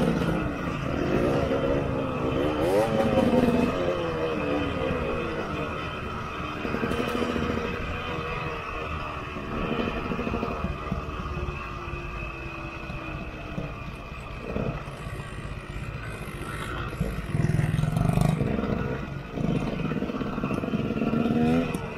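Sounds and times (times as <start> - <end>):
dirt bike engine revving: 0.0 - 11.1, 14.4 - 21.9.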